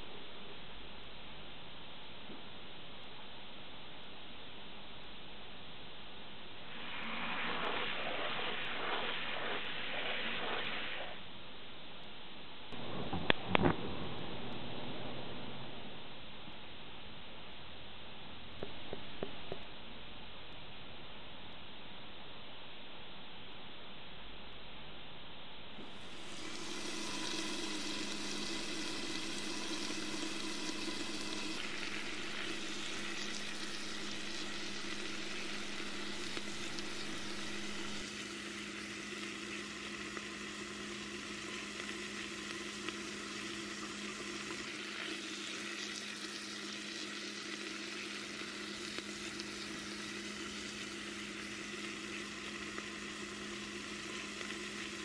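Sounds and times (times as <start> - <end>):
low hum: 0.0 - 38.1
onion sizzling in hot oil: 6.6 - 11.2, 25.8 - 55.0.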